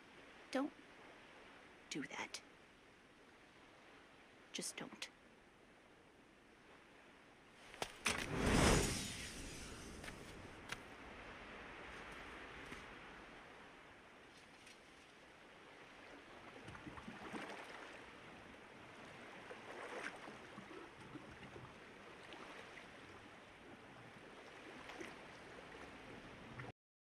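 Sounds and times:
water lapping: 0:07.6 - 0:26.7.

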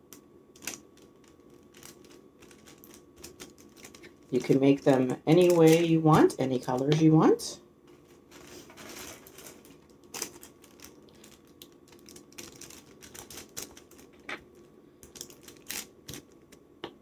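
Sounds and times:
tissue paper crinkling: 0:00.6 - 0:06.2, 0:08.0 - 0:14.2, 0:15.1 - 0:16.4.

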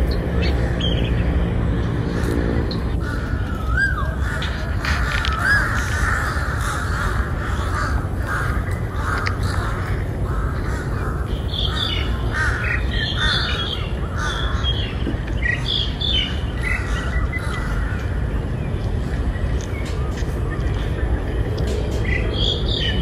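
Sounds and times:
crows cawing: 0:02.0 - 0:15.0, 0:16.2 - 0:18.3.

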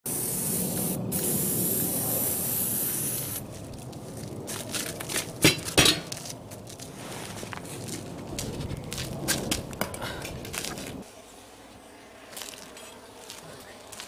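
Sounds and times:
aerosol can hissing: 0:00.1 - 0:03.4.

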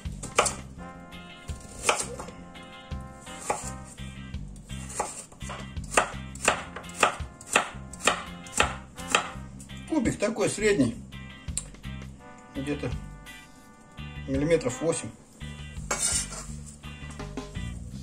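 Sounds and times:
knife chopping carrot on wooden board: 0:00.2 - 0:00.7, 0:01.6 - 0:02.4, 0:03.3 - 0:03.9, 0:04.8 - 0:09.4.

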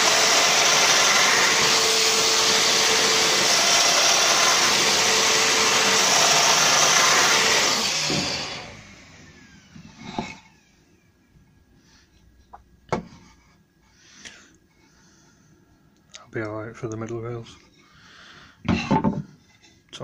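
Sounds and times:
power joiner cutting wood: 0:00.0 - 0:10.6
power tool spinning down: 0:00.0 - 0:11.0.

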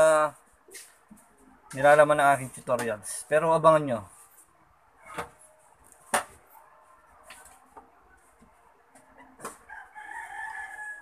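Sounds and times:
rooster crowing: 0:09.6 - 0:11.0.

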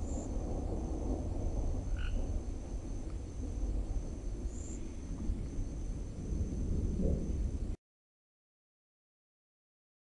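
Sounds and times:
insects trilling: 0:00.0 - 0:07.7
low rumble: 0:00.0 - 0:07.8
frog call: 0:01.9 - 0:02.3.

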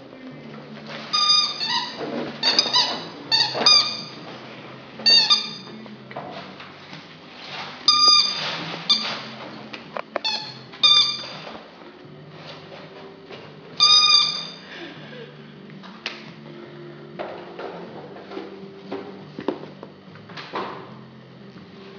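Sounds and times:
squeaky dog toy squeaking: 0:01.1 - 0:04.2, 0:05.0 - 0:05.7, 0:07.9 - 0:09.2, 0:10.2 - 0:11.4, 0:13.8 - 0:14.6.

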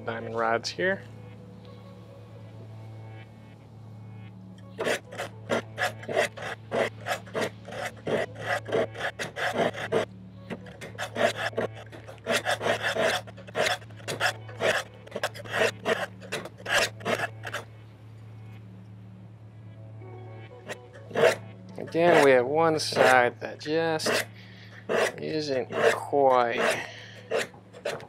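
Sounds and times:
knife blade rasping on sharpening rods: 0:04.8 - 0:17.7, 0:20.7 - 0:23.3, 0:24.0 - 0:28.0.

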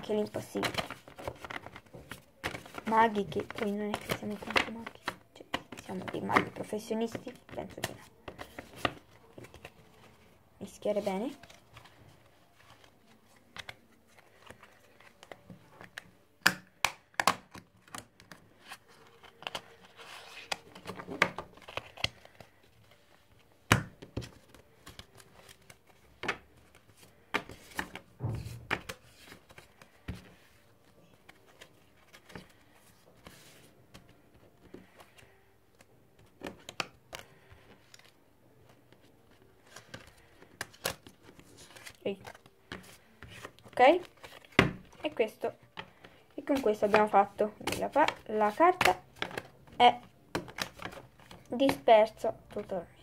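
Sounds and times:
playing cards being shuffled: 0:10.8 - 0:23.0, 0:23.7 - 0:51.9.

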